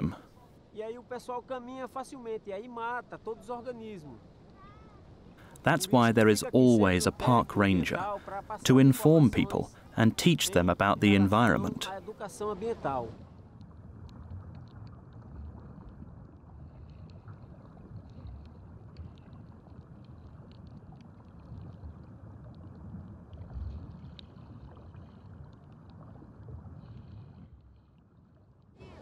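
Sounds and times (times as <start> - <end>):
underwater wash of moving water: 11.8 - 28.2
faint underwater clicks: 13.3 - 28.7.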